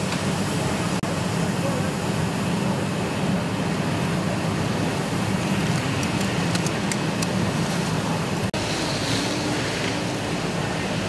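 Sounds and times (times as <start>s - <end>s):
fire rushing roar: 0.0s - 11.0s
fire crackles: 3.9s - 8.5s.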